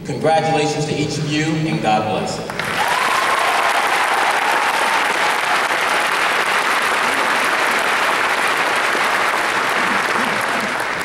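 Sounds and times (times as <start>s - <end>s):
large audience applauding: 2.4s - 11.0s.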